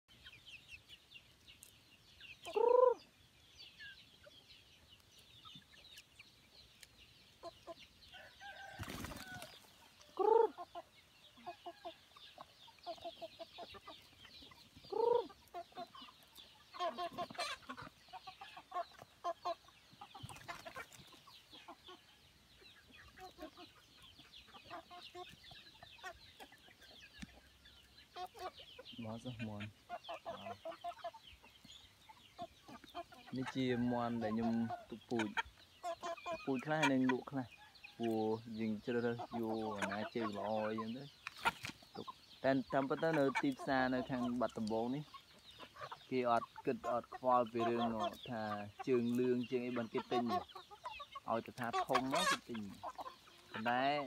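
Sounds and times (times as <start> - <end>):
chicken calls: 0.1 - 54.0
chickens clucking: 0.1 - 54.0.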